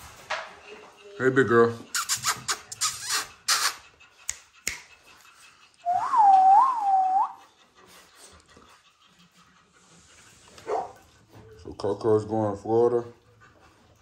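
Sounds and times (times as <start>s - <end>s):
person whistling: 5.8s - 7.4s.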